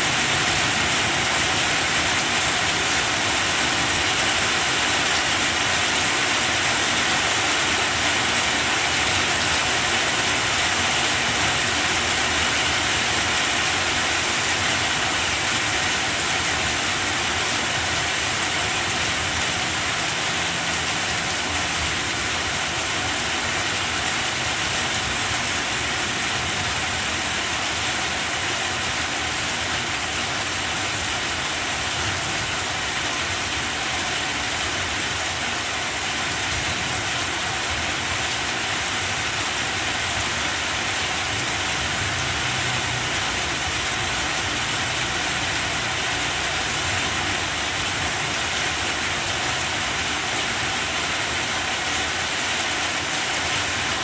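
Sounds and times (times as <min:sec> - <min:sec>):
rain on plant leaves: 0:00.0 - 0:54.0.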